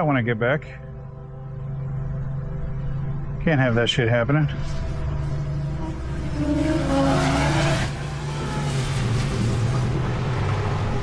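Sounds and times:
quadcopter propellers whirring: 5.7s - 10.7s.

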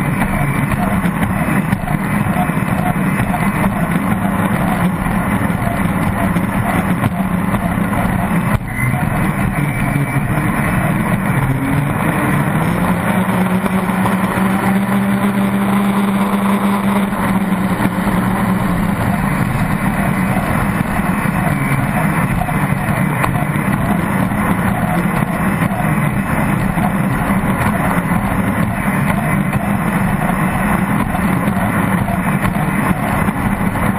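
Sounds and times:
boat engine running hard: 0.0s - 33.9s.

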